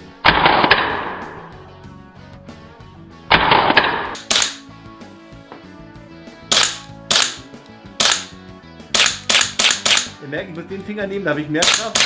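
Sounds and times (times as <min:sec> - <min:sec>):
faint background music: 0:00.0 - 0:12.0
airsoft rifle shots: 0:00.2 - 0:01.6, 0:03.3 - 0:04.7, 0:06.5 - 0:10.2, 0:11.6 - 0:12.0.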